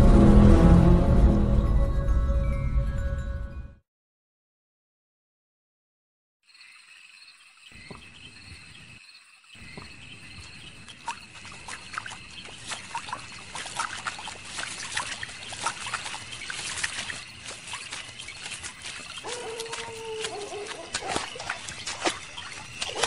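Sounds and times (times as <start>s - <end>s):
water dripping and trickling: 6.5s - 23.0s.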